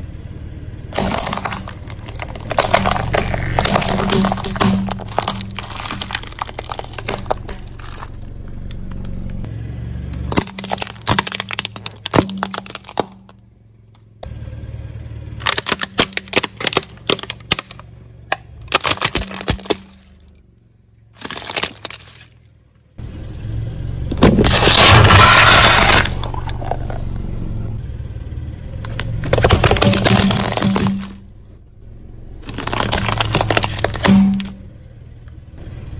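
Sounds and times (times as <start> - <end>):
objects crushed under car tyre: 0.9 - 9.2, 10.2 - 13.4, 15.4 - 20.4, 21.2 - 22.6, 24.1 - 27.0, 28.9 - 31.4, 32.4 - 34.8.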